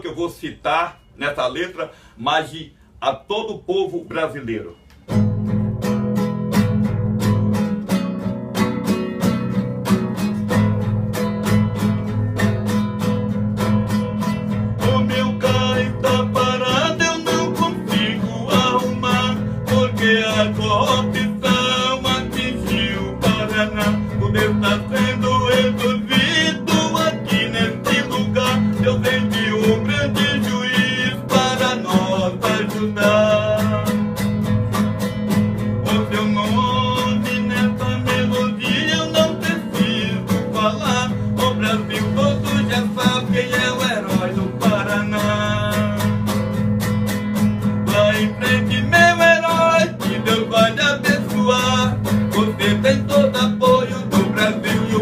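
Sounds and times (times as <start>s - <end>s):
acoustic guitar strumming: 4.3s - 55.0s
man singing: 14.7s - 34.2s, 35.7s - 46.5s, 47.8s - 55.0s.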